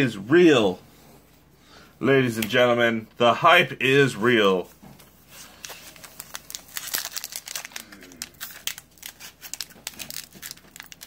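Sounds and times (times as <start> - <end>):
foil wrapper crinkling: 5.3 - 11.0.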